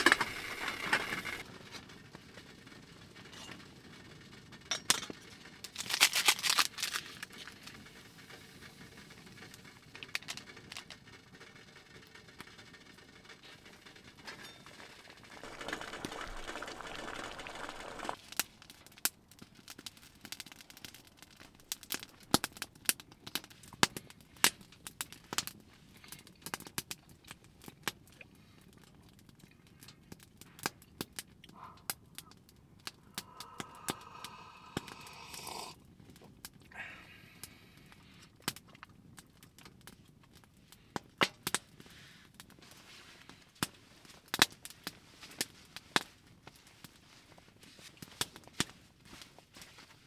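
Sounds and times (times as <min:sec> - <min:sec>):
wood fire crackling and popping: 0:00.0 - 0:50.0
steady hiss: 0:15.4 - 0:18.2, 0:33.0 - 0:35.8.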